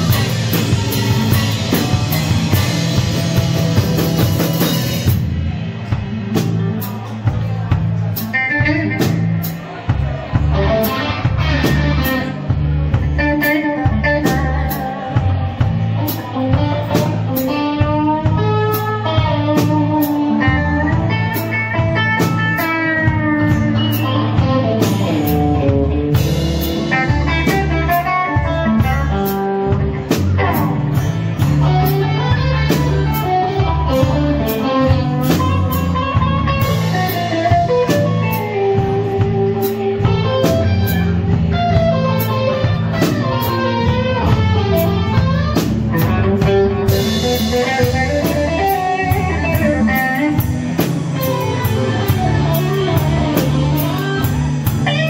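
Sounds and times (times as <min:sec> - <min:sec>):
bass guitar: 0:00.0 - 0:55.0
drum kit: 0:00.0 - 0:55.0
electric guitar lead with bent notes: 0:00.0 - 0:55.0.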